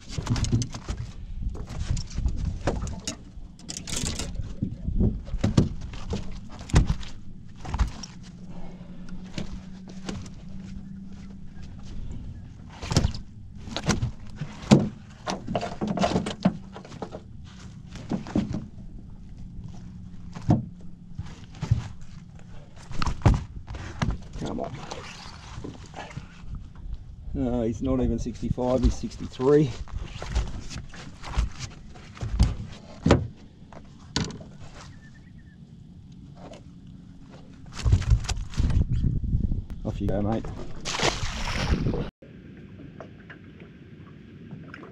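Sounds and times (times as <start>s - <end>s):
knocks and thumps in boat: 0.0s - 27.0s, 28.0s - 35.0s, 37.3s - 39.1s, 39.8s - 42.1s
knocks and thuds on boat deck: 4.4s - 8.1s, 12.8s - 17.3s, 20.3s - 22.1s, 23.0s - 24.6s, 30.3s - 34.5s.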